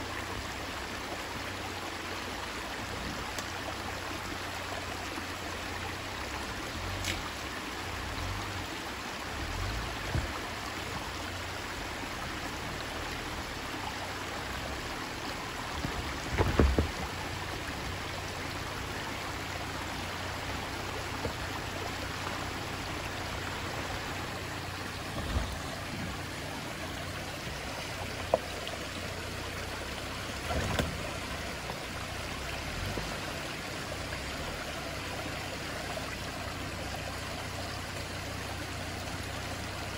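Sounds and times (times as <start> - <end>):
rushing water wash: 0.0 - 39.9
vehicle engine rumble: 0.0 - 39.9
tyres and suspension thumping: 15.6 - 17.6, 22.4 - 31.7.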